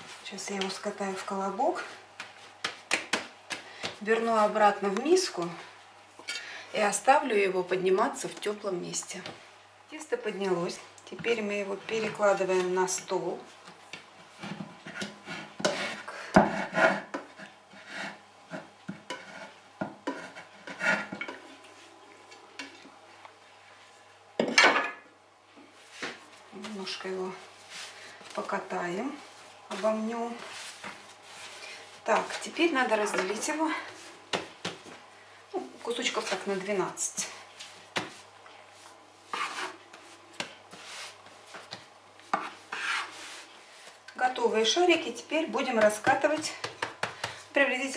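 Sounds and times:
knife scraping through dough: 0:14.4 - 0:21.3, 0:39.2 - 0:40.1, 0:42.3 - 0:43.5.

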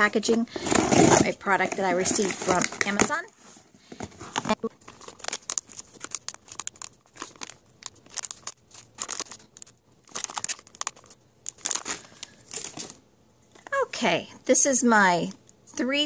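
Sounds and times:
plastic bag crinkling: 0:04.0 - 0:13.0.

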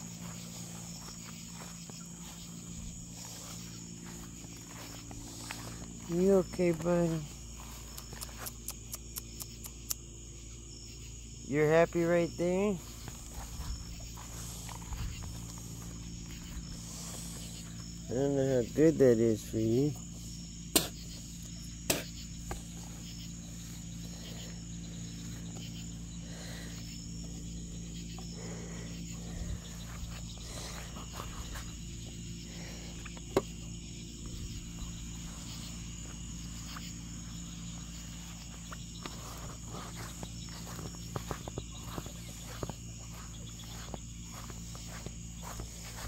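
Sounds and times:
crickets chirping: 0:00.0 - 0:46.0
sharp clicks: 0:07.9 - 0:10.0.

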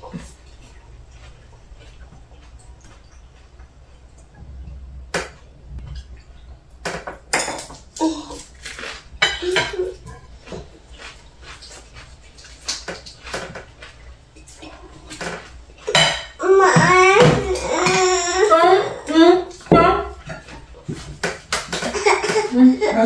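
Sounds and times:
chopsticks tapping plates and bowls: 0:14.4 - 0:18.2.

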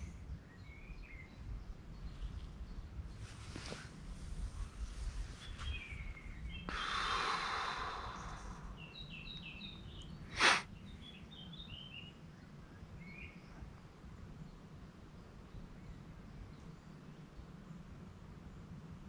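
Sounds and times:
small songbird chirping: 0:00.0 - 0:18.7
person breathing out: 0:06.7 - 0:08.8, 0:10.3 - 0:10.6.

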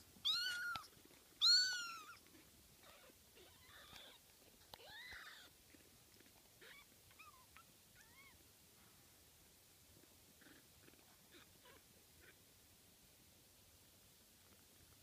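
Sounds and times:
kittens mewing: 0:00.2 - 0:02.2, 0:02.8 - 0:04.2, 0:04.8 - 0:05.6.

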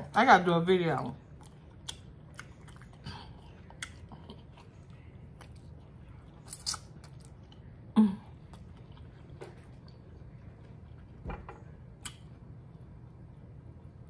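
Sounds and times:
chewing with wet clicks: 0:01.3 - 0:07.8, 0:08.4 - 0:11.2, 0:12.0 - 0:12.4.

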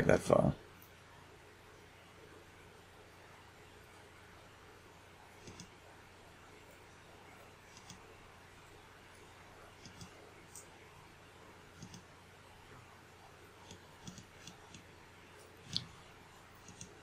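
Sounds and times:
faint room hiss: 0:00.0 - 0:17.0
computer mouse clicking: 0:05.4 - 0:05.8, 0:07.7 - 0:08.1, 0:09.7 - 0:10.7, 0:11.7 - 0:12.1, 0:13.6 - 0:14.9, 0:15.6 - 0:17.0.

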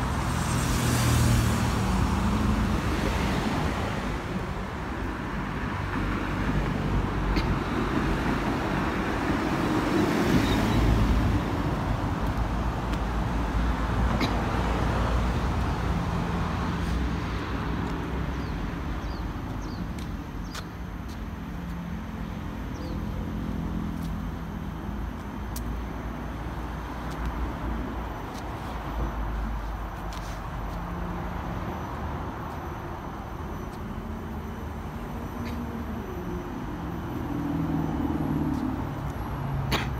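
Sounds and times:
road traffic rumble: 0:00.0 - 0:39.9.

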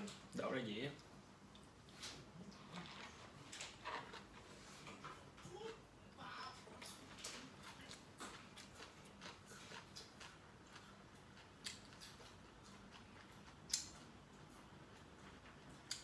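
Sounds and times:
person chewing food: 0:01.0 - 0:05.9, 0:06.7 - 0:16.0.

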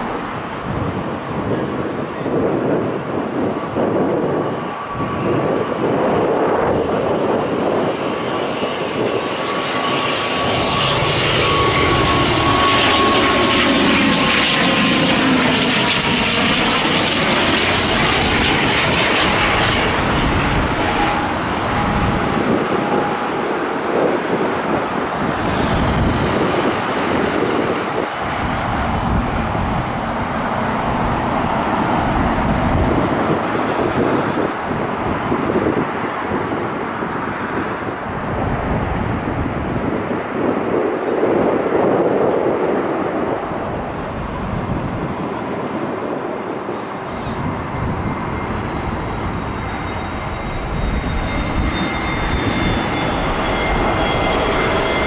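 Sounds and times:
jet airliner passing overhead: 0:00.0 - 0:55.0
wind rumble on microphone: 0:00.0 - 0:55.0
high engine whine dropping in pitch: 0:09.8 - 0:34.6.

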